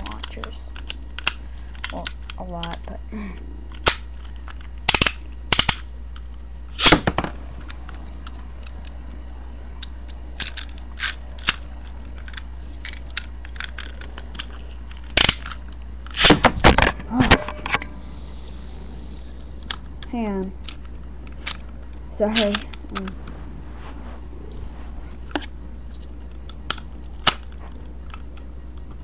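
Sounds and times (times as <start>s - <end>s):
spinning tops clacking together: 17.6s - 19.8s.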